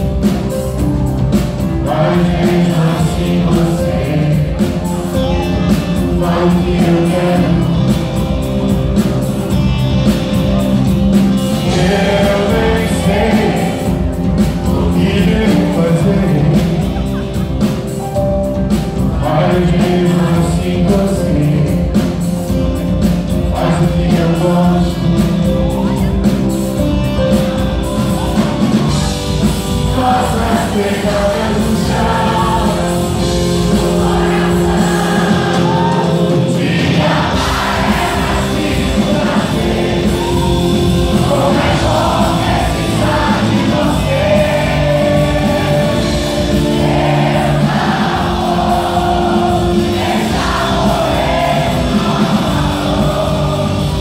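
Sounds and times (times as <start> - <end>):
live rock band playing: 0.0 - 54.0
man singing: 1.6 - 8.9, 11.5 - 26.4, 28.1 - 46.6.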